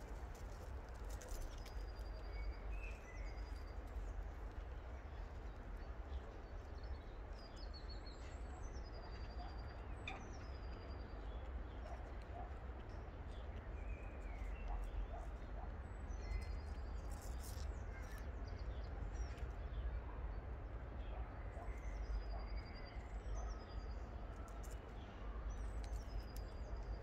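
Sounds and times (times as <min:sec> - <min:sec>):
songbirds singing: 0:00.0 - 0:27.0.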